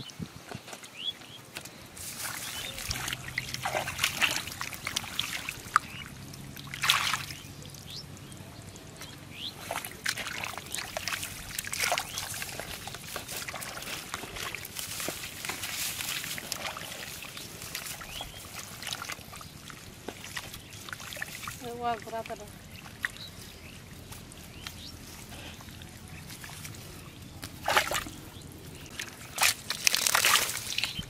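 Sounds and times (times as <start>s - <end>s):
wet mud squelching: 1.6s - 31.0s
hands splashing in muddy water: 2.0s - 7.6s, 9.0s - 22.1s, 24.3s - 28.2s, 28.8s - 31.0s.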